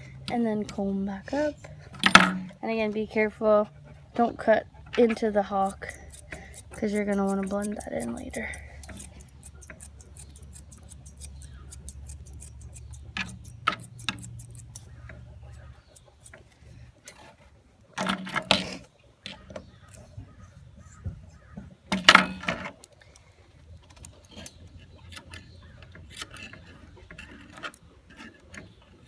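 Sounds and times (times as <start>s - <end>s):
shears snipping hair: 4.2s - 17.1s.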